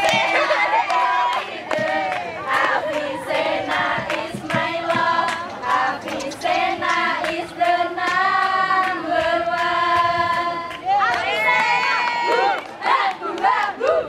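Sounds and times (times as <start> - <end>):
hand claps: 0.0 - 13.7
women singing together: 0.0 - 14.0.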